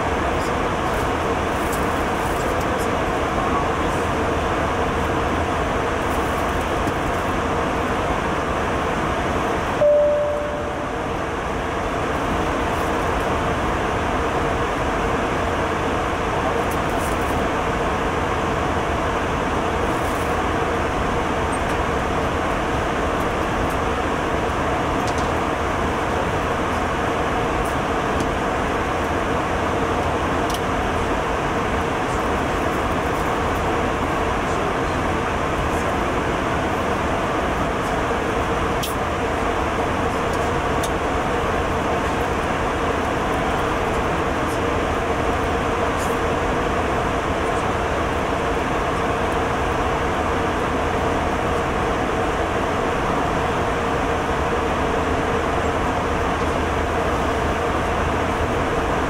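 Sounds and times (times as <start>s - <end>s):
short cabin tone: 9.8s - 11.1s.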